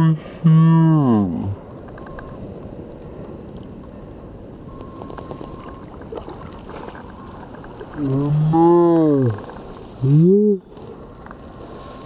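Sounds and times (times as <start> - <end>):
low voice-like call: 0.0 - 1.6, 8.0 - 10.9.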